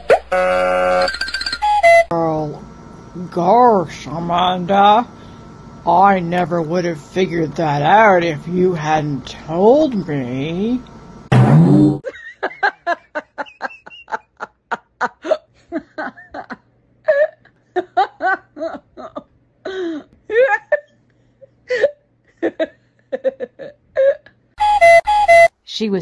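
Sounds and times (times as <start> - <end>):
faint steady hum: 0.3 - 25.2
woman laughing hard: 12.0 - 24.3.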